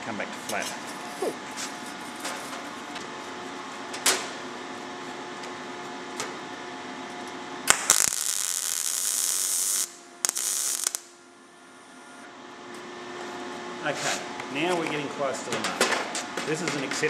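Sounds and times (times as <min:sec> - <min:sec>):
steady low hum: 0:00.0 - 0:17.0
welder arc hissing: 0:07.7 - 0:11.1.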